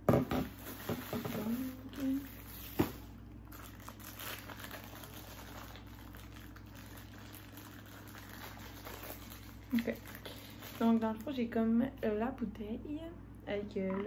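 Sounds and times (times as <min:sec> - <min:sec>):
packaging crinkling: 0:00.6 - 0:11.4.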